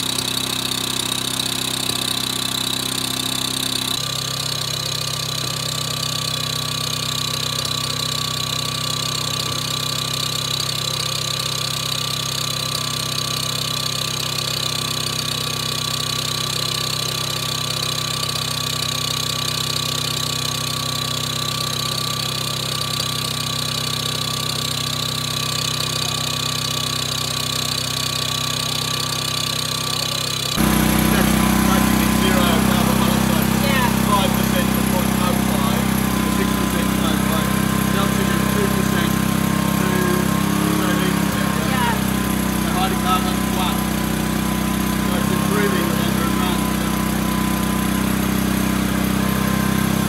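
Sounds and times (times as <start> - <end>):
engine idling hum: 0.0 - 50.0.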